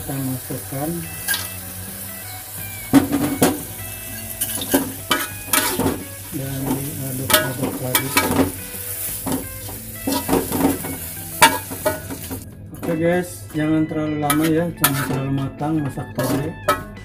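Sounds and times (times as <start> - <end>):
frying sizzle: 0.0 - 12.5
metal spatula scraping a wok: 1.2 - 12.4, 14.3 - 15.2, 16.2 - 17.0.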